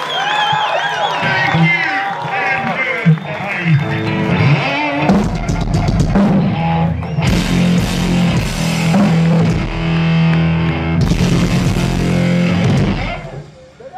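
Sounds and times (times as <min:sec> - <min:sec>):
distorted electric guitar: 0:01.2 - 0:13.8
drum kit: 0:04.3 - 0:13.6.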